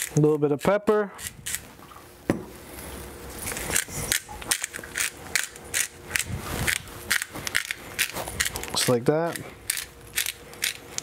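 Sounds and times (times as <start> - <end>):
pepper mill grinding: 3.5 - 11.0.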